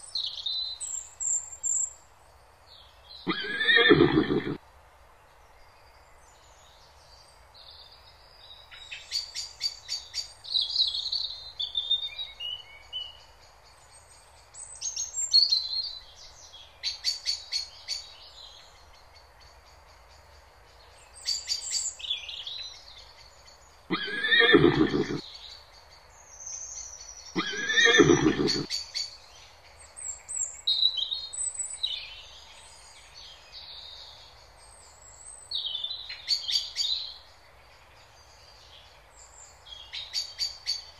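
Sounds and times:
zebras barking calls: 3.3 - 4.6, 23.9 - 25.2, 27.4 - 28.7.

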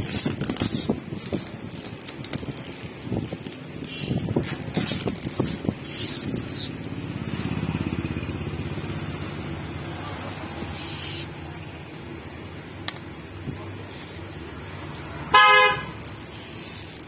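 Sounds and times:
plastic film peeling: 0.0 - 7.6, 16.0 - 17.0
vehicle engine humming: 5.2 - 17.0.

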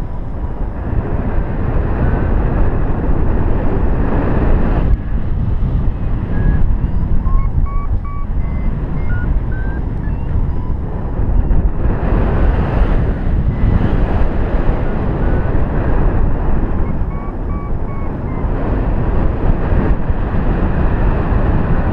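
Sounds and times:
wind buffeting microphone: 0.0 - 21.9
variometer beeps rising in pitch: 6.2 - 11.6, 16.8 - 18.6.

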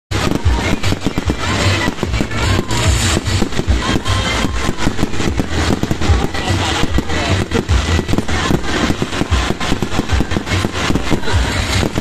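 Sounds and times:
fireworks crackling and banging: 0.1 - 12.0
music playing: 0.1 - 12.0.

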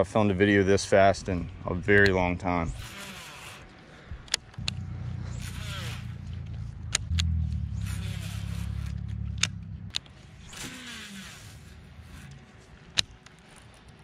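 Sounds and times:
fishing reel spool whirring: 2.5 - 12.7
low rumble: 4.1 - 10.6
sharp clicks: 4.2 - 10.8.

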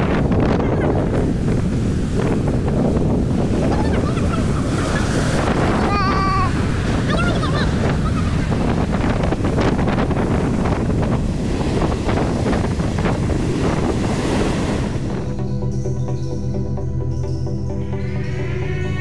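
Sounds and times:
music: 0.0 - 4.2, 12.6 - 19.0
rough surf crashing: 0.0 - 15.5
wind buffeting microphone: 0.0 - 16.2.

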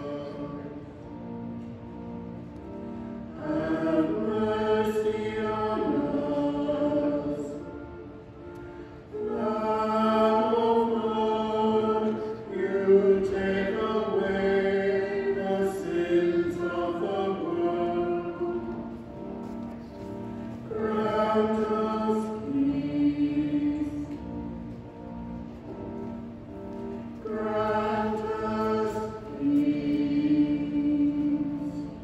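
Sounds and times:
choir singing long held notes: 0.0 - 32.0.

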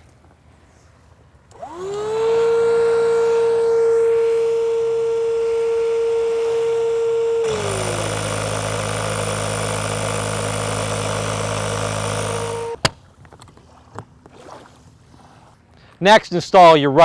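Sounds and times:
electric air pump whining: 1.5 - 12.8.

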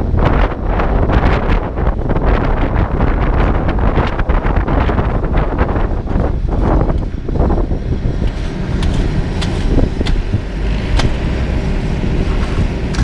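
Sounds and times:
heavy diesel engine: 0.0 - 13.0.

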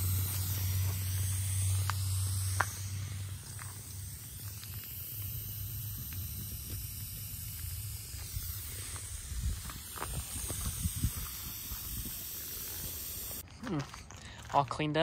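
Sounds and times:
steady hiss: 0.0 - 13.4.

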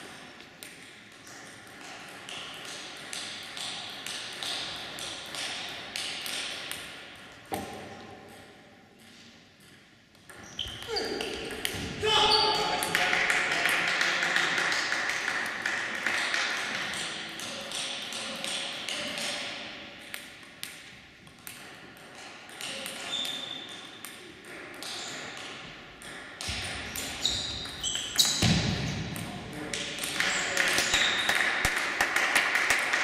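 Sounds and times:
table tennis ball hits: 0.6 - 9.1, 9.7 - 12.0, 14.6 - 32.9.

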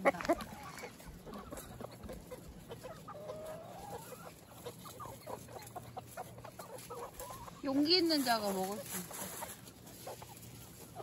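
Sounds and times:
chicken drawn-out call: 0.0 - 7.9
chickens clucking: 0.0 - 11.0.

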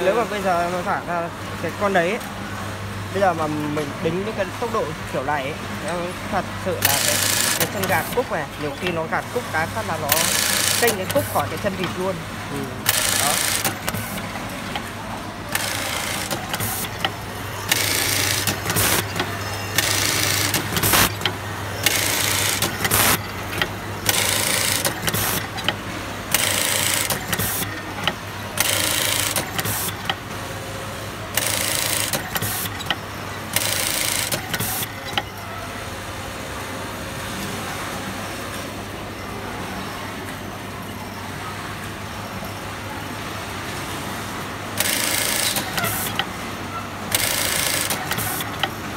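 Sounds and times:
sewing machine fast stitching: 6.8 - 8.2, 10.1 - 11.4, 12.9 - 14.2, 15.5 - 17.1, 17.7 - 23.3, 24.1 - 25.5, 26.3 - 27.7, 28.6 - 30.1, 31.4 - 32.8, 33.5 - 34.9, 44.8 - 46.2, 47.1 - 48.6.

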